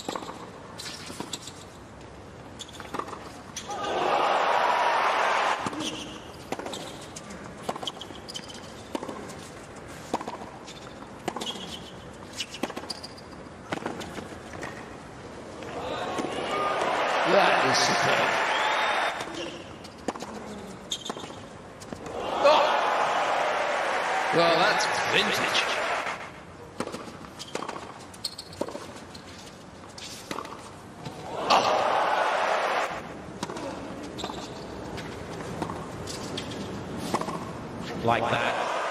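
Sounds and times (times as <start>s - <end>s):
sneakers squeaking on court: 2.5s - 3.7s, 5.7s - 9.6s, 10.2s - 14.8s, 19.2s - 22.0s, 26.8s - 30.7s, 33.4s - 37.5s
crowd cheering and applauding: 3.8s - 5.6s, 15.8s - 19.2s, 22.1s - 26.3s, 31.3s - 33.0s, 38.3s - 38.9s
racquet striking tennis ball: 37.0s - 37.5s.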